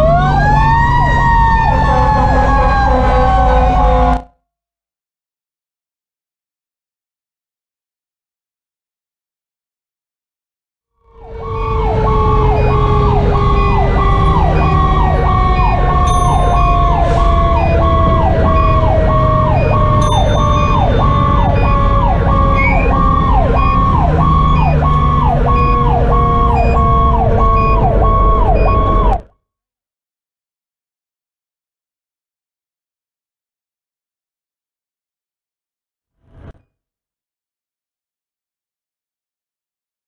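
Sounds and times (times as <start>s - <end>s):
electronic siren yelping: 0.0s - 4.2s, 11.0s - 29.2s
mechanical siren winding down: 0.0s - 4.2s, 11.1s - 29.2s
diesel engine running: 11.2s - 29.2s.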